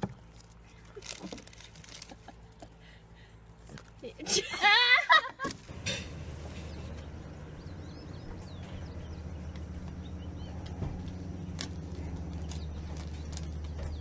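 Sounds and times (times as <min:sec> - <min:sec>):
steady low hum: 0:05.6 - 0:14.0
small birds chirping: 0:05.8 - 0:14.0.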